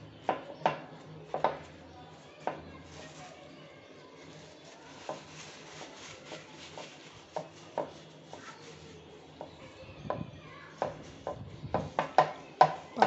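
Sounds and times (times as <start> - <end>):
paper towel rustling on meat: 2.1 - 11.8.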